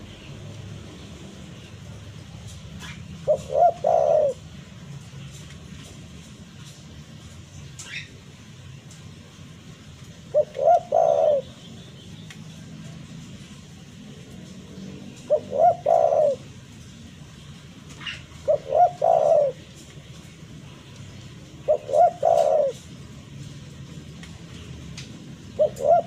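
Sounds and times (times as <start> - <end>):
dove cooing: 2.8 - 4.8, 10.2 - 11.6, 15.0 - 16.8, 18.0 - 19.9, 21.4 - 23.1, 25.4 - 26.0.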